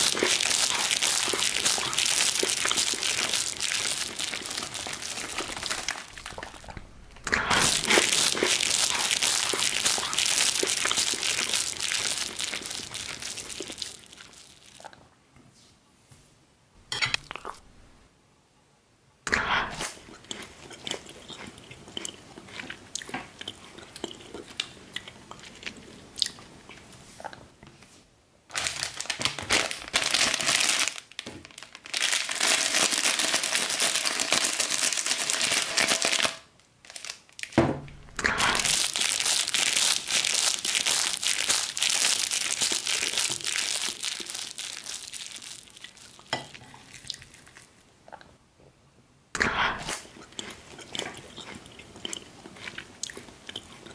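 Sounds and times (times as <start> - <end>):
foil bag crinkling and tearing: 0.0 - 14.8, 28.5 - 47.8.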